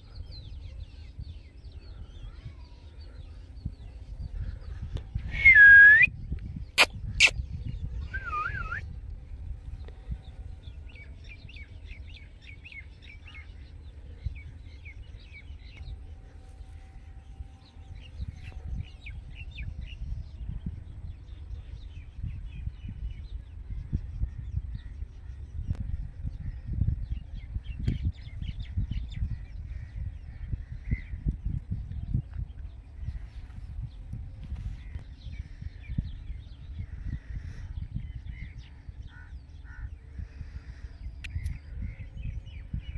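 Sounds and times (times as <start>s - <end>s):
small birds twittering: 0.0s - 5.3s, 6.4s - 42.9s
wind rumble on microphone: 0.0s - 42.9s
parakeet whistled call: 8.0s - 8.8s.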